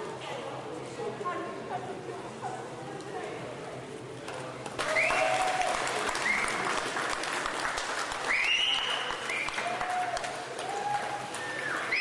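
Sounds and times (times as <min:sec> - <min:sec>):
high cheers: 0:04.8 - 0:06.8, 0:08.2 - 0:12.0
audience applauding: 0:04.8 - 0:12.0.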